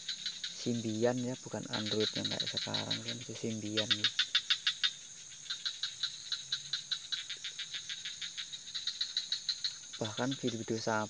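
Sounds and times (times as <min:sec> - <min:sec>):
crickets chirping: 0:00.0 - 0:11.0
high-pitched insect drone: 0:00.0 - 0:11.0.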